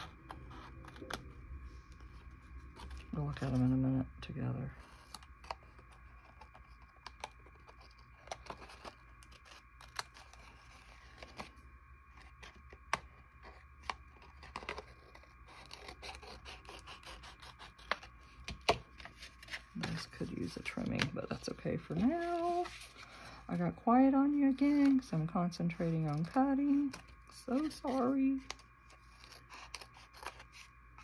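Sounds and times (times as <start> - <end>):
faint hum: 0.0 - 31.0.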